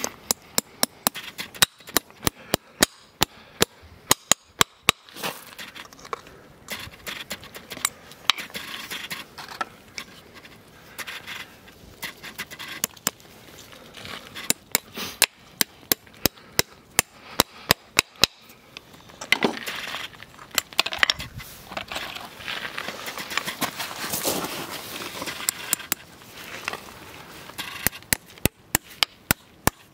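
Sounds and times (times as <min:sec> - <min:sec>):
hammer tapping on horseshoe nails: 0:00.3 - 0:05.1, 0:14.4 - 0:18.5
scraping on hoof: 0:05.1 - 0:13.0, 0:21.2 - 0:28.0.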